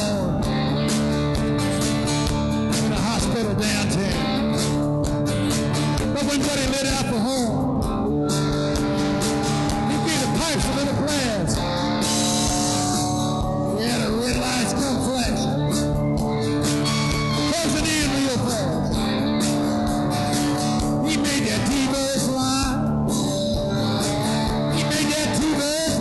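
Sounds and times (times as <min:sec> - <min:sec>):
acoustic guitar: 0:00.0 - 0:26.0
bass guitar: 0:00.0 - 0:26.0
drums: 0:00.0 - 0:26.0
electric guitar: 0:00.0 - 0:26.0.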